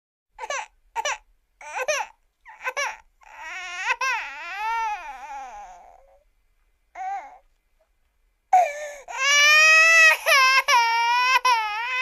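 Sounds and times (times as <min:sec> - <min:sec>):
child wailing cry: 0:00.4 - 0:06.1, 0:09.1 - 0:12.0
child sobbing: 0:08.6 - 0:12.0.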